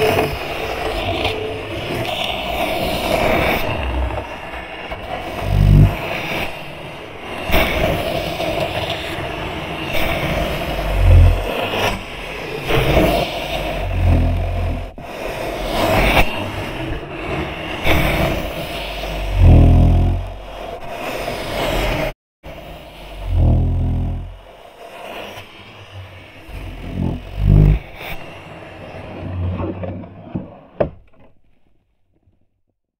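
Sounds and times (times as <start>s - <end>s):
chair legs scraping wooden floor: 5.2s - 6.1s, 10.0s - 12.0s, 12.7s - 15.0s, 18.9s - 20.7s, 23.1s - 24.4s, 26.5s - 28.0s, 29.1s - 31.0s
deep bass thumps: 5.4s - 6.0s, 10.8s - 11.5s, 13.7s - 14.9s, 19.0s - 20.6s, 23.2s - 24.4s, 26.6s - 27.8s.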